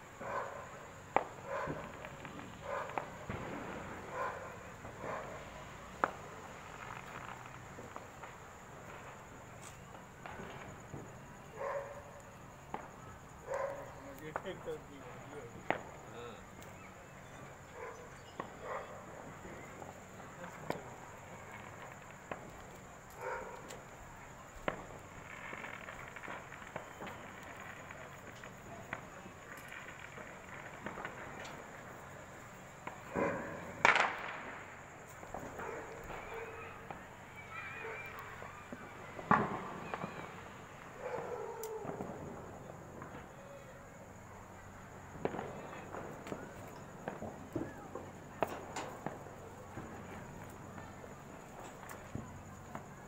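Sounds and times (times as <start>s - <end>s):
firecrackers banging and popping: 0.0s - 53.0s
faint distant voices: 0.1s - 53.0s
sharp pops: 32.8s - 34.5s.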